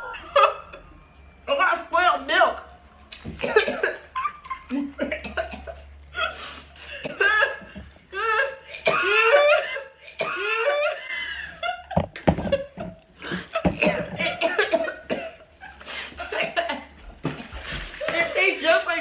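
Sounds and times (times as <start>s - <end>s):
women laughing: 0.0s - 0.9s, 3.6s - 5.2s, 10.4s - 13.8s
women coughing: 3.4s - 4.1s, 5.0s - 11.0s, 13.4s - 15.4s, 16.1s - 16.8s.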